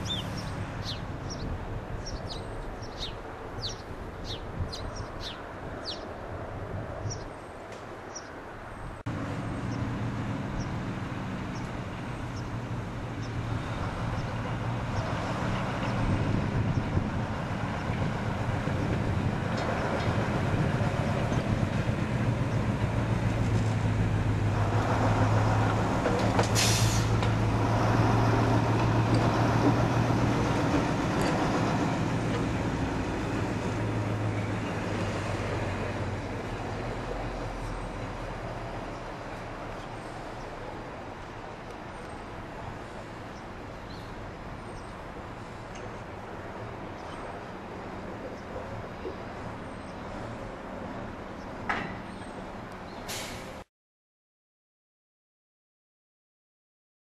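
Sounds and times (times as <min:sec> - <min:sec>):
birds chirping: 0:00.0 - 0:06.2, 0:07.0 - 0:09.0, 0:11.5 - 0:13.4, 0:43.3 - 0:46.0.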